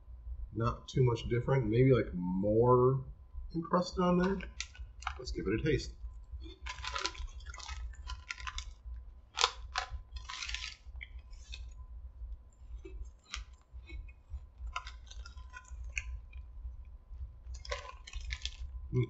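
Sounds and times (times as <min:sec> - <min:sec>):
cereal being chewed: 0:04.2 - 0:05.4, 0:06.3 - 0:16.6, 0:17.2 - 0:19.0
foil bag crinkling: 0:04.2 - 0:05.5, 0:06.5 - 0:11.8, 0:12.7 - 0:16.4, 0:17.5 - 0:18.7.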